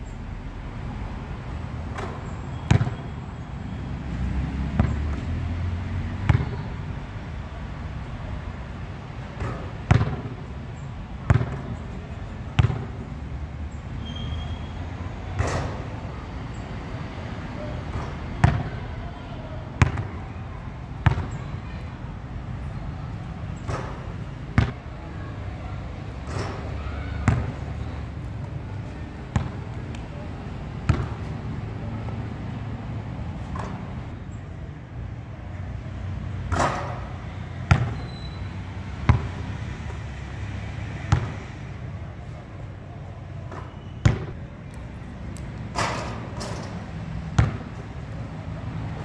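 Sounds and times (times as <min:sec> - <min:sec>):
basketball bouncing on hard court: 0:02.0 - 0:03.1, 0:06.2 - 0:06.7, 0:09.4 - 0:10.4, 0:11.2 - 0:11.8, 0:12.6 - 0:13.0, 0:18.4 - 0:18.8, 0:19.8 - 0:20.2, 0:21.0 - 0:21.4, 0:24.6 - 0:24.8, 0:27.2 - 0:27.6, 0:29.3 - 0:29.7, 0:30.9 - 0:31.3, 0:37.7 - 0:38.3, 0:39.1 - 0:39.4, 0:41.1 - 0:41.4, 0:43.6 - 0:44.4, 0:47.4 - 0:47.8
basketball hitting hoop: 0:02.0 - 0:03.1, 0:09.4 - 0:10.4, 0:11.3 - 0:11.7, 0:12.6 - 0:13.0, 0:21.0 - 0:21.3, 0:26.3 - 0:27.6, 0:30.9 - 0:31.3, 0:37.7 - 0:38.1, 0:41.1 - 0:41.4, 0:43.5 - 0:44.4, 0:47.4 - 0:47.7.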